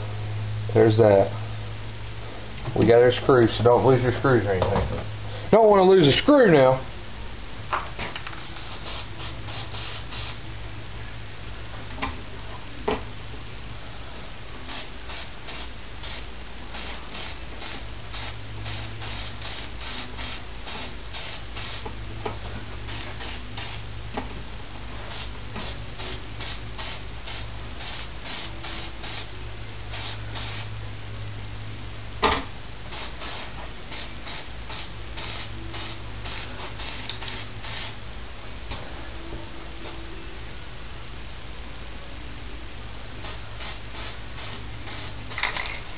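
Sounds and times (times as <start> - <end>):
steady low hum: 0.0 - 45.9
spray paint can hissing: 8.3 - 10.4, 14.7 - 21.9, 22.9 - 23.8, 25.1 - 29.3, 29.9 - 30.7, 32.9 - 38.0, 43.2 - 45.8.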